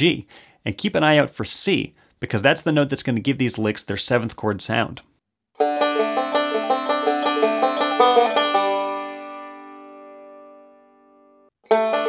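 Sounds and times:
banjo picking: 0:05.6 - 0:10.2, 0:11.6 - 0:12.0.

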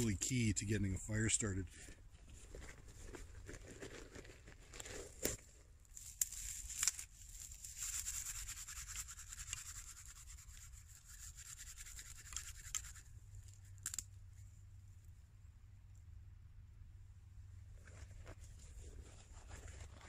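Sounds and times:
scratchy rubbing and rustling: 0:01.8 - 0:14.0, 0:17.8 - 0:20.0.

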